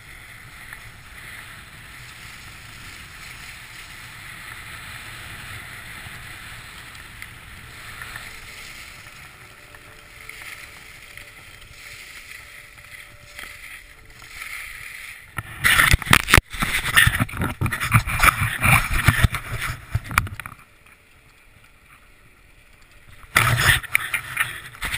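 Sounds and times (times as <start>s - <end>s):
skis hissing over snow: 0.0s - 20.1s, 21.0s - 24.9s
camera rubbing and scraping: 7.6s - 20.7s, 23.2s - 24.9s.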